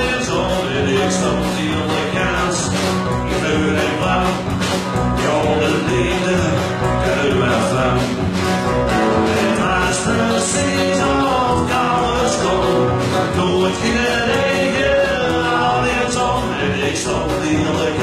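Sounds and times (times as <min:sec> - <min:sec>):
person singing: 0:00.0 - 0:08.2, 0:09.0 - 0:18.0
drums steady beat: 0:00.0 - 0:18.0
guitars: 0:00.0 - 0:18.0
upright double bass: 0:00.0 - 0:18.0.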